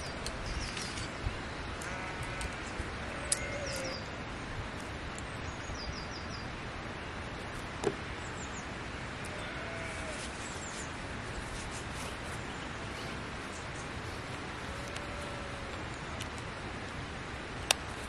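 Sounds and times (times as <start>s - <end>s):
small birds chirping: 0.0s - 4.2s
steady background hiss: 0.0s - 18.0s.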